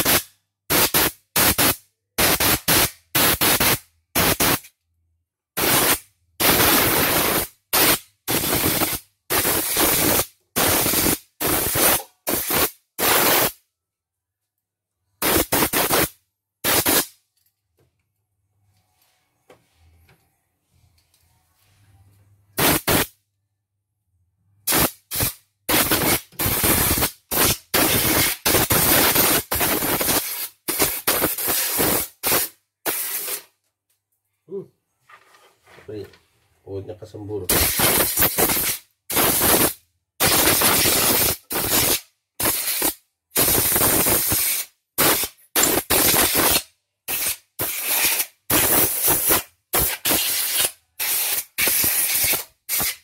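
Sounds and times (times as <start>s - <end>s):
compressed air blasts: 0.0s - 4.7s, 5.6s - 13.6s, 15.2s - 17.1s, 22.6s - 23.1s, 24.6s - 33.5s, 37.5s - 53.0s.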